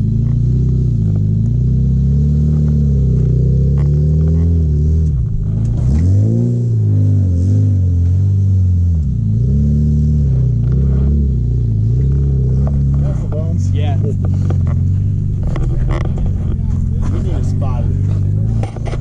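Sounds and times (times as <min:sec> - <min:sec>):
off-road engine revving: 0:00.0 - 0:19.0.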